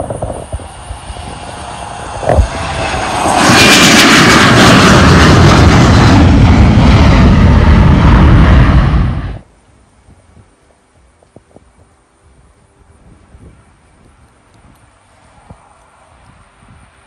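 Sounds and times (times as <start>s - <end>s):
jet engines roaring: 0.0s - 9.5s.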